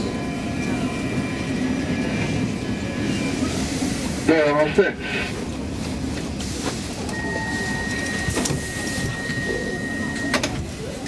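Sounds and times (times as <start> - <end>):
train carriage low rumble: 0.0 - 11.0.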